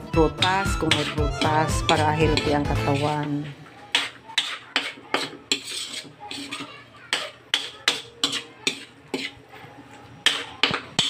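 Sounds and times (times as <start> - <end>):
metal spatula scraping a wok: 0.1 - 9.5, 10.2 - 11.0.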